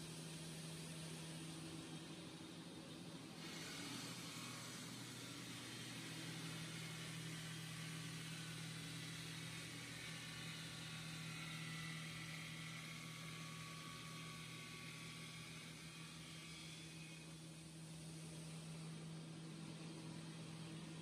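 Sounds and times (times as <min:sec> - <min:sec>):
saw machine hum: 0:00.0 - 0:21.0
water spraying and stone cutting: 0:03.3 - 0:19.0.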